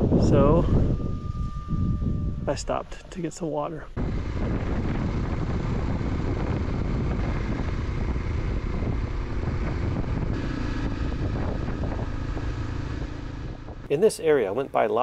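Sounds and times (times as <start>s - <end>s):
rushing wind: 0.0s - 15.0s
motorcycle engine running: 4.0s - 14.6s.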